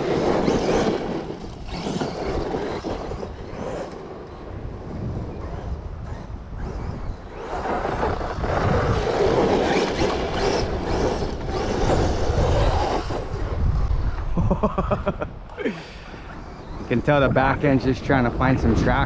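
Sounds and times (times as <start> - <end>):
tyres scrabbling on dirt: 0.0 - 13.6
electric motor and drivetrain: 0.0 - 14.3, 15.4 - 19.0.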